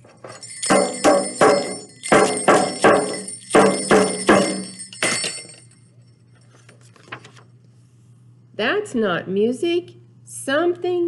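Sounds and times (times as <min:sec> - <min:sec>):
clanging percussion strikes: 0:00.0 - 0:05.7.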